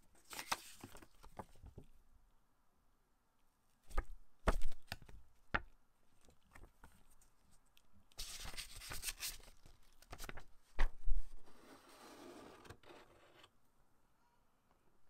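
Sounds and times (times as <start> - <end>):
paper leaflet rustling: 0.2 - 1.7, 8.2 - 11.0
plastic tray scraping cardboard: 11.5 - 13.5.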